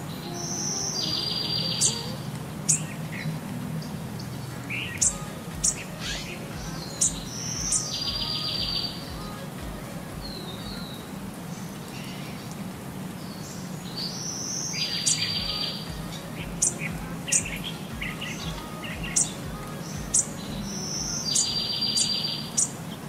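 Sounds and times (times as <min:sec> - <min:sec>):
bird chirping: 0:00.0 - 0:12.6, 0:13.2 - 0:23.0
trilled bird call: 0:14.6 - 0:22.8.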